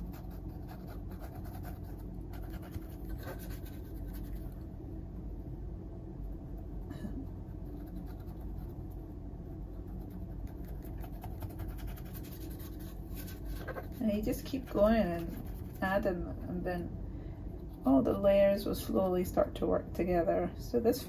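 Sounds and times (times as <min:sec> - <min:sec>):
steady low hum: 0:00.0 - 0:21.0
paintbrush scraping on canvas: 0:09.9 - 0:16.0.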